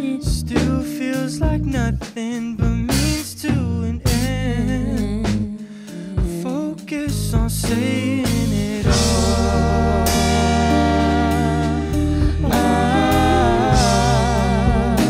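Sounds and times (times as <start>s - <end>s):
electric bass: 0.0s - 6.4s, 7.0s - 15.0s
vocals: 0.0s - 15.0s
drum kit: 0.2s - 15.0s
electric guitar: 4.8s - 15.0s
saxophone: 8.8s - 15.0s.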